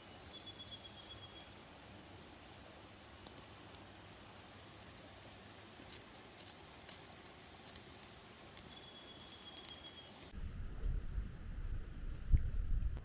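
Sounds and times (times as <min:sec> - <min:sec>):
campfire crackling: 0:00.0 - 0:10.4.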